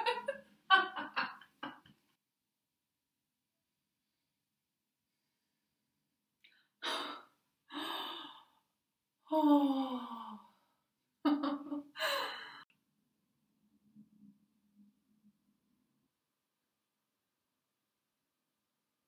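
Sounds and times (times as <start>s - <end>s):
woman laughing: 0.0s - 1.9s, 11.3s - 12.5s.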